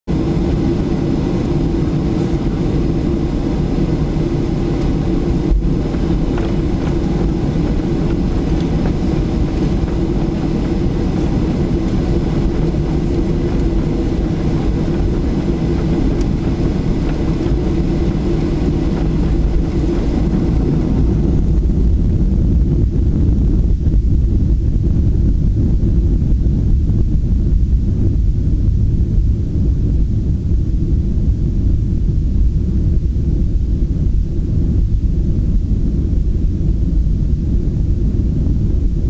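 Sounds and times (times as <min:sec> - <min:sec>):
jet engine drone: 0:00.1 - 0:39.0
wheels rumbling on pavement: 0:04.8 - 0:23.5.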